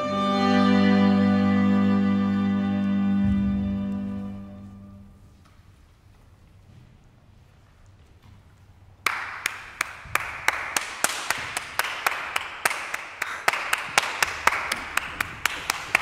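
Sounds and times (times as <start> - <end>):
people clapping: 9.0 - 16.0.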